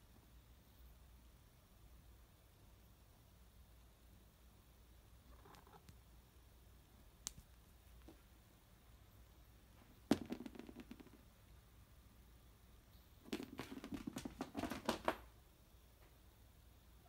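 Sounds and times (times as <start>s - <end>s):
toy knocking on wooden floor: 10.1s - 11.2s.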